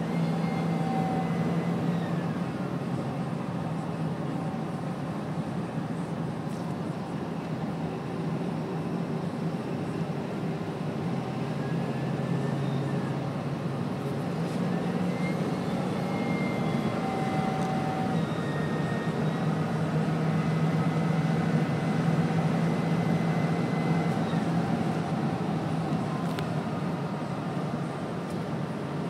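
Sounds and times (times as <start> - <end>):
diesel engine drone: 0.0 - 29.0
road noise: 0.0 - 29.0
turbocharger whine: 14.4 - 26.9.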